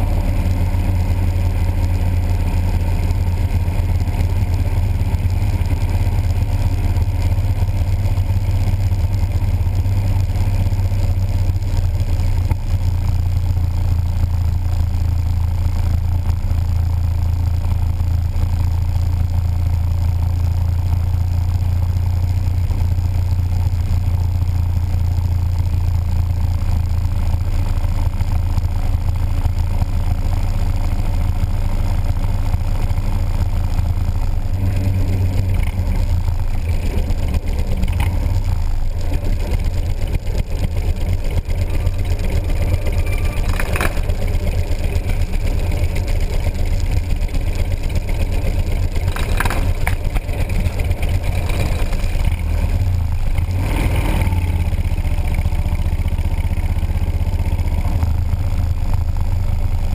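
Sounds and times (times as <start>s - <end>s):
motorcycle engine droning: 0.0s - 59.9s.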